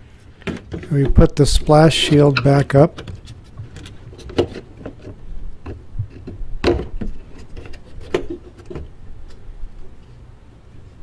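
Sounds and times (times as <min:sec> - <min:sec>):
plastic knocking and rubbing: 0:02.1 - 0:08.9.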